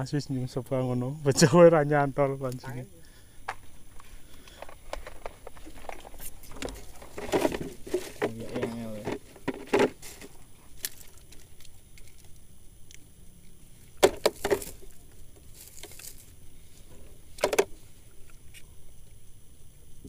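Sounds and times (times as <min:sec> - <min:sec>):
knocks and clatters in boat: 0:04.6 - 0:10.4
light rustling and ticks: 0:14.4 - 0:16.3.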